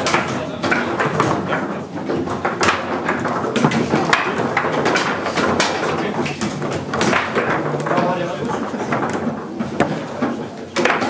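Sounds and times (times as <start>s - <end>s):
foosball ball knocking: 0.0s - 11.0s
rods clacking and sliding: 0.0s - 11.0s.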